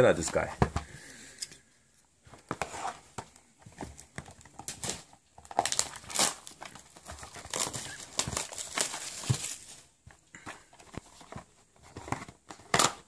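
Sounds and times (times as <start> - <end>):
plastic shrink wrap crinkling: 3.9 - 13.0.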